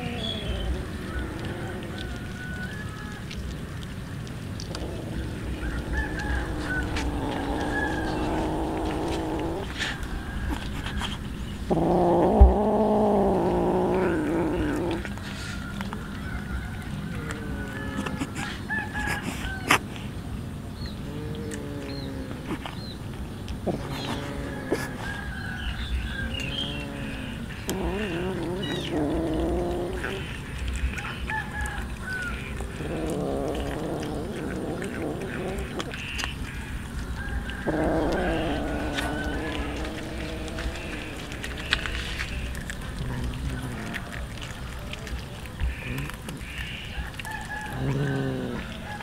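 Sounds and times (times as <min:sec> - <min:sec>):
cat growling: 0:00.0 - 0:02.7, 0:04.6 - 0:15.4, 0:17.1 - 0:18.5, 0:21.0 - 0:22.8, 0:23.6 - 0:25.2, 0:25.9 - 0:31.1, 0:32.4 - 0:49.0
kittens making wavering calls: 0:00.0 - 0:03.4, 0:04.3 - 0:16.0, 0:23.6 - 0:25.2, 0:26.0 - 0:49.0.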